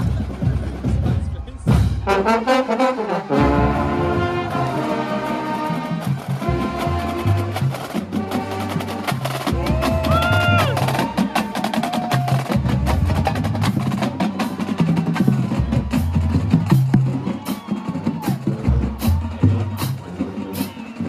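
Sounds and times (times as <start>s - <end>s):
bass drum beats: 9.4s - 21.0s.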